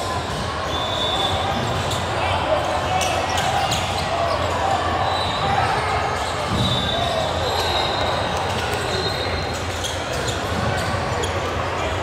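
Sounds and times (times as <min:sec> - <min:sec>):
chatter of people: 0:00.0 - 0:12.0.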